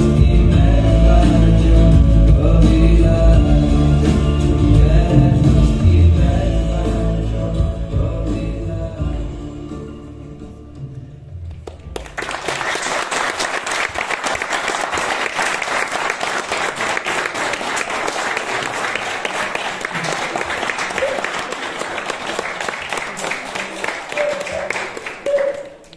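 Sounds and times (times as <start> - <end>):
song ending: 0.0 - 12.6
group applause: 11.5 - 25.9.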